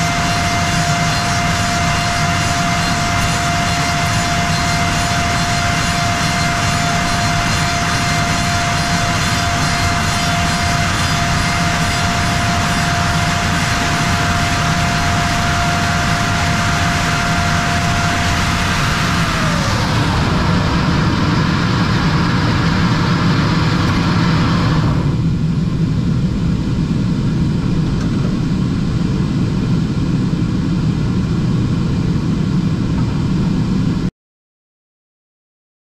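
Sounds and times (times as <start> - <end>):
machine spindle high whine: 0.0 - 25.6
loud machine hum: 0.0 - 34.1.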